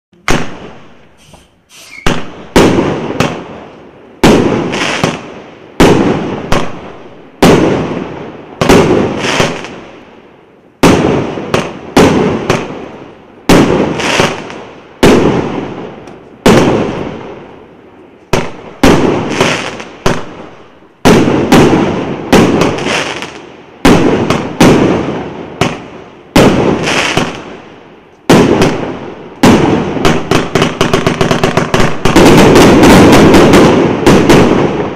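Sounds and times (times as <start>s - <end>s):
firework bangs echoing: 0.2s - 10.0s, 10.8s - 17.5s, 18.3s - 34.9s.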